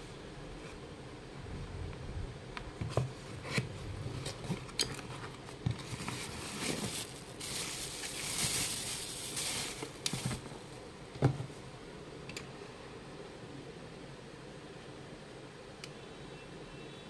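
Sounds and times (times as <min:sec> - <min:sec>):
cardboard box being opened: 0:03.4 - 0:10.5
plastic wrapping rustling: 0:04.2 - 0:10.8.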